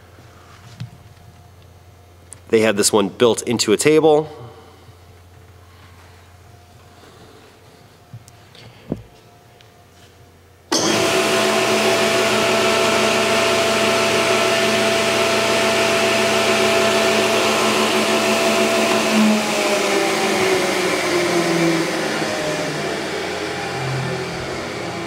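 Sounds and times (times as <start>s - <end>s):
table saw running: 10.7s - 25.0s.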